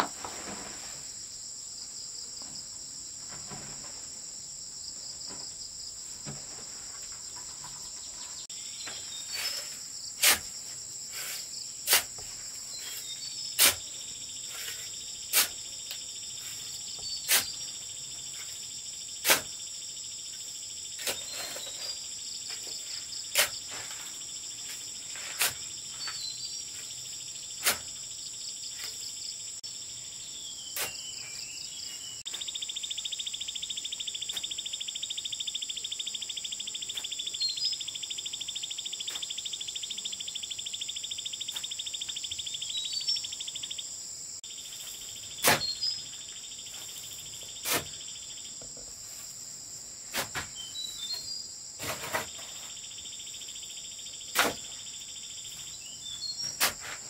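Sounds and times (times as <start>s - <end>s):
insects chirring: 0.0s - 57.0s
bird chirps: 44.8s - 48.6s, 50.5s - 51.5s.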